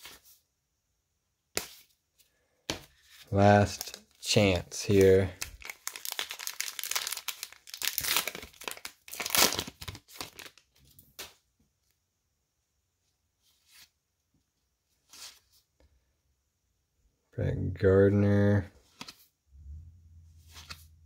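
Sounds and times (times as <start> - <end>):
card pack wrapper tearing: 3.7 - 10.6.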